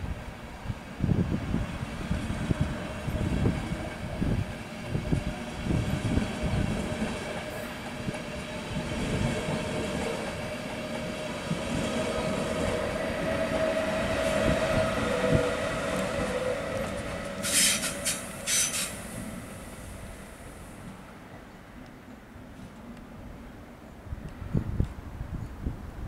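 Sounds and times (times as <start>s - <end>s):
train wheels rumbling over rails: 0.0s - 21.2s
high-pitched screech: 12.9s - 19.2s.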